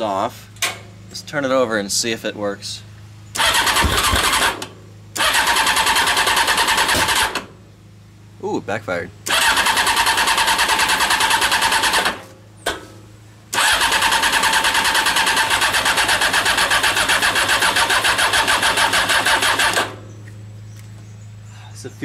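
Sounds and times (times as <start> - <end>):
motorcycle engine cranking: 3.3 - 7.5, 9.2 - 12.2, 13.5 - 20.0.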